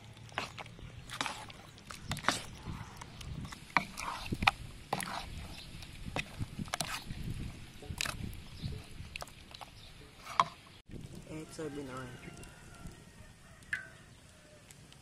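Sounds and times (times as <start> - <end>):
hand squelching chicken in batter: 0.0 - 9.8.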